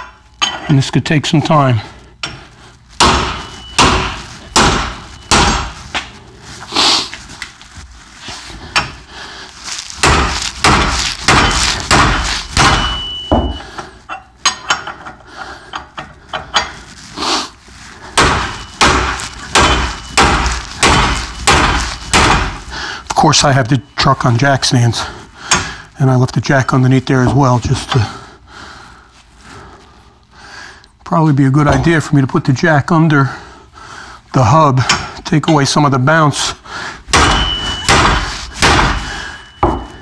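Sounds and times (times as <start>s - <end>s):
sledgehammer striking metal: 3.0s - 5.8s, 10.0s - 13.7s, 18.1s - 22.7s, 37.1s - 40.0s.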